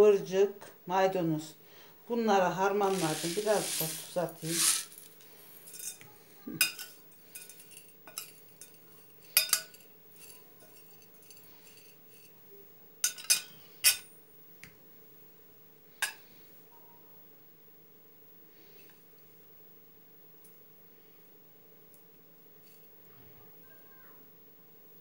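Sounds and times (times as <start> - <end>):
metal spoon clinking on ceramic plate: 13.0 - 14.0.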